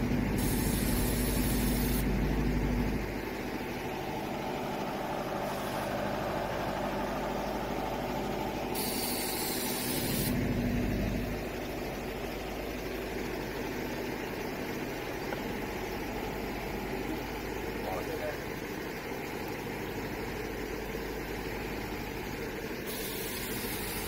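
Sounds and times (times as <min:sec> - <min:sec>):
engine idling: 0:00.0 - 0:24.0
hiss: 0:00.4 - 0:02.0, 0:05.4 - 0:06.0, 0:08.7 - 0:10.4, 0:22.8 - 0:24.0.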